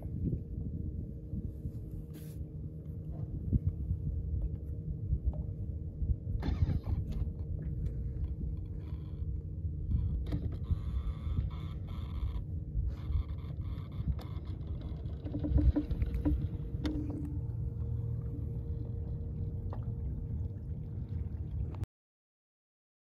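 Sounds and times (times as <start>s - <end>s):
faint steady hum: 0.0s - 21.9s
steady low rumble: 0.0s - 21.9s
rustling noise: 1.6s - 2.4s.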